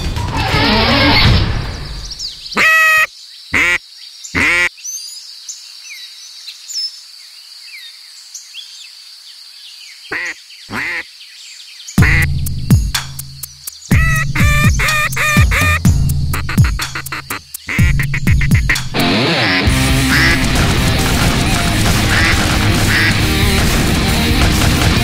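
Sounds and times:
duck quacks: 2.6s - 3.8s, 4.4s - 4.7s, 10.1s - 11.1s, 12.0s - 12.3s, 13.9s - 23.8s
faint high bird chirps: 9.6s - 15.8s.

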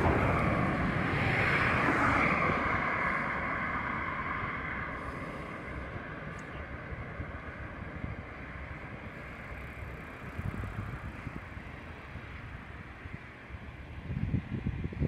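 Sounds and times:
steady outdoor hiss: 0.0s - 15.0s
wind buffeting microphone: 0.0s - 15.0s.

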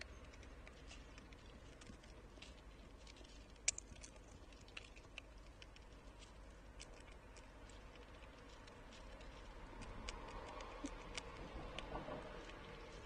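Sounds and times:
squirrel feeding clicks: 0.0s - 13.0s.

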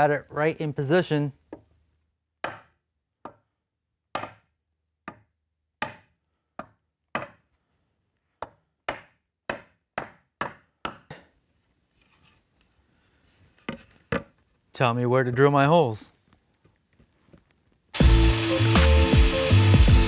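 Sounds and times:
rubber mallet striking wood: 2.4s - 3.5s, 4.1s - 7.5s, 8.4s - 11.2s
faint board shuffle: 11.9s - 14.6s, 16.1s - 17.8s.

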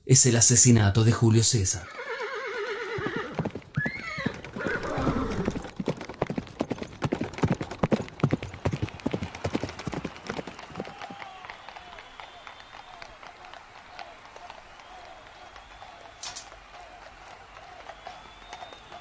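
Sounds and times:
horse whinnying: 1.8s - 5.7s
hooves clip-clopping on hard ground: 1.9s - 12.0s, 12.7s - 19.0s.

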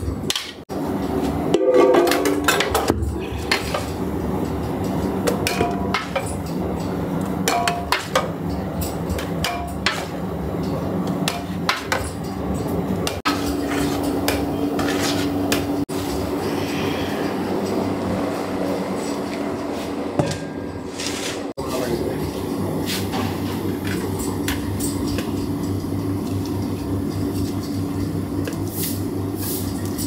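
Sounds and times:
steady low hum: 0.0s - 30.0s
metal scoop scraping a pot: 13.3s - 15.4s.

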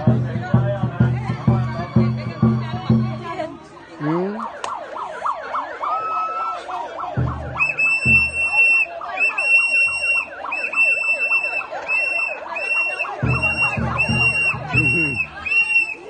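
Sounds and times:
women ululating: 5.3s - 16.0s
shrill whistle blasts: 7.4s - 16.0s.

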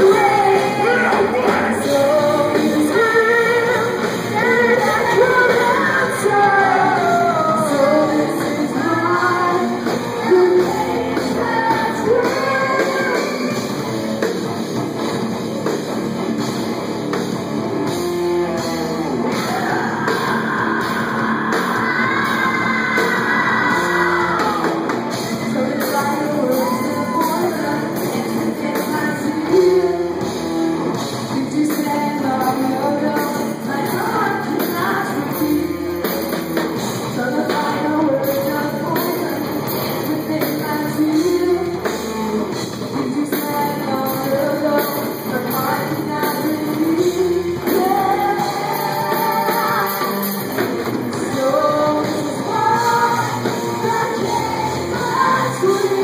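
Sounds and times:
high sung vocal line: 0.0s - 13.8s, 19.2s - 30.2s, 37.2s - 56.0s
live rock band playing: 0.0s - 56.0s.

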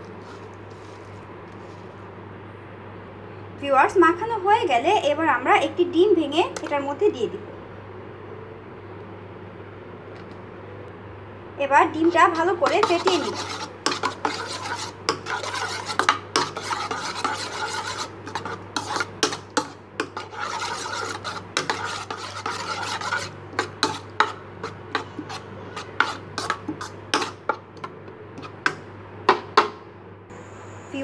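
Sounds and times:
egg beaten in plastic bowl: 12.0s - 29.7s.

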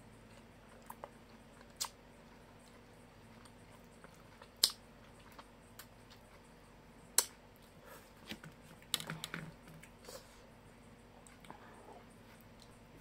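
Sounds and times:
sharp eating clicks: 0.3s - 6.4s.

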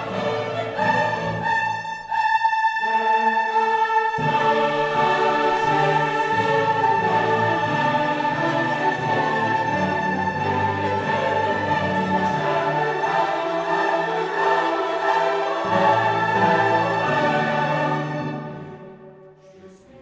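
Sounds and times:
orchestral music: 0.0s - 20.0s.

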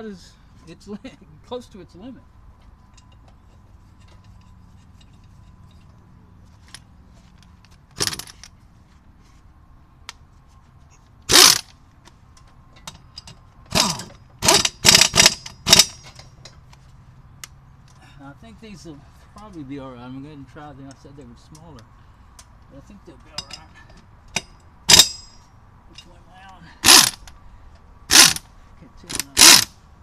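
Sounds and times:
metal tools clanking: 2.6s - 6.8s, 12.4s - 16.7s, 23.1s - 27.3s.

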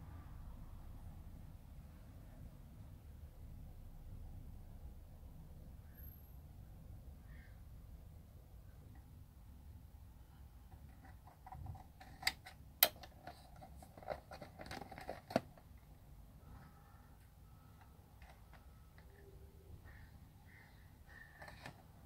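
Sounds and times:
plastic cases clicking: 10.7s - 15.8s, 21.3s - 22.0s.

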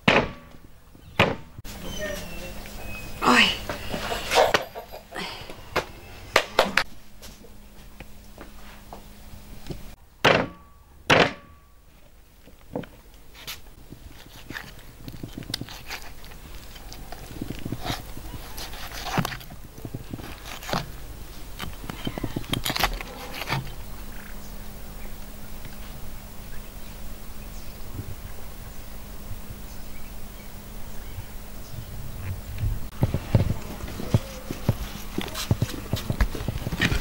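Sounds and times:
loud thunks: 0.0s - 1.6s, 10.2s - 11.6s.

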